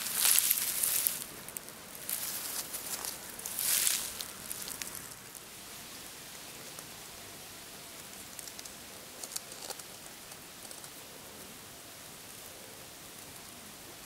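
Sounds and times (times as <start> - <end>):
soft crackles: 0.0 - 5.5, 7.9 - 11.1
faint steady hiss: 0.0 - 14.0
grass and leaves rustling: 0.0 - 14.0.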